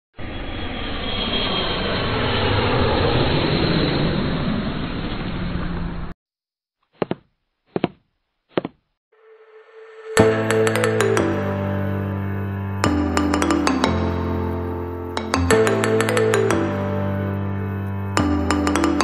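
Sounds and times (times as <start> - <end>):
dense rushing roar: 0.2 - 6.1.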